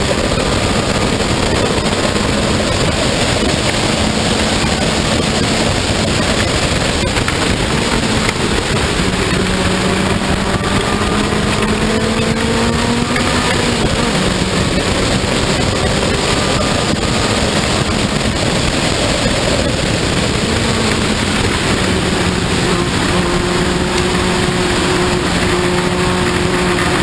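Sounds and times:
racing car engine: 0:00.0 - 0:27.0
wind rush: 0:00.0 - 0:27.0.

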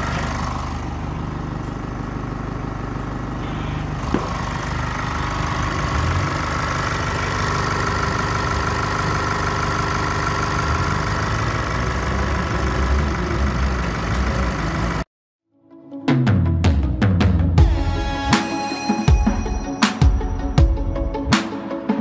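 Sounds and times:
diesel engine idling: 0:00.0 - 0:15.1.

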